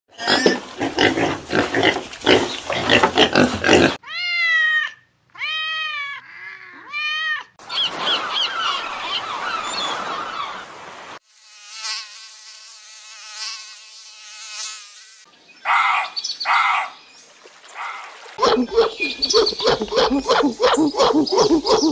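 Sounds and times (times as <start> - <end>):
piglets grunting and squealing: 0.1 - 4.0, 18.4 - 21.9
arching pitched animal calls: 17.8 - 21.9.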